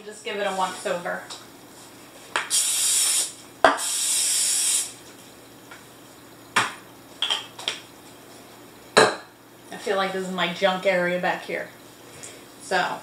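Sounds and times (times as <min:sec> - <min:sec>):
aerosol spray hissing: 0:02.4 - 0:05.0.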